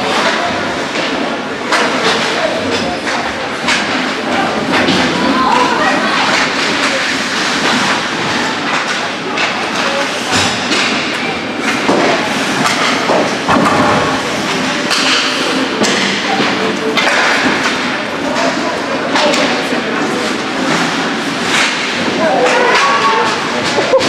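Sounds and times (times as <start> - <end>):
skates scraping ice: 0.0 - 24.0
spectators talking: 0.0 - 24.0
sticks and puck knocking: 8.6 - 19.5.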